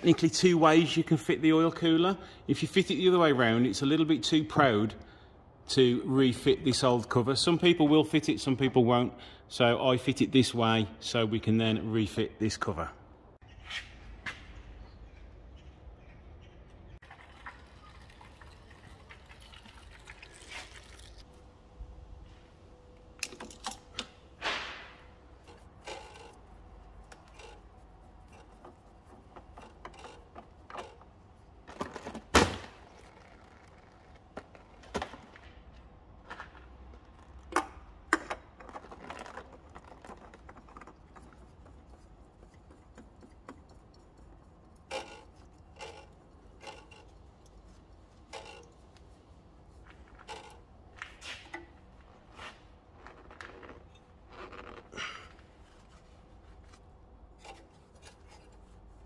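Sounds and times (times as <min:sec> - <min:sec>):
tools and metal parts clinking: 0:23.0 - 0:24.4, 0:25.4 - 0:32.3, 0:37.1 - 0:49.0, 0:49.9 - 0:51.8, 0:56.7 - 0:58.8.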